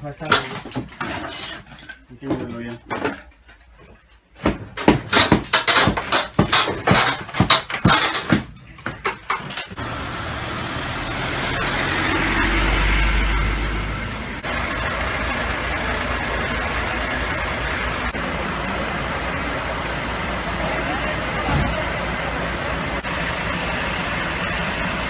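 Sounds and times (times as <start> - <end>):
fire engine running: 9.2 - 25.0
idling vehicle engines rumble: 9.2 - 25.0.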